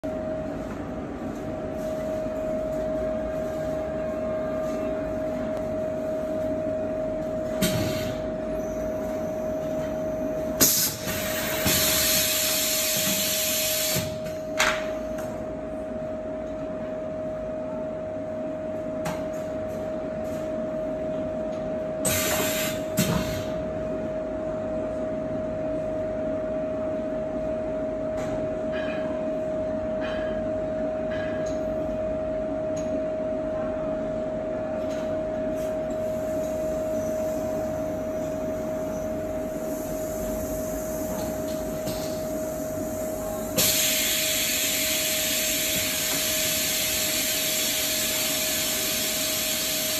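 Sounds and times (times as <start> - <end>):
air hissing: 10.6 - 14.2, 43.6 - 49.9.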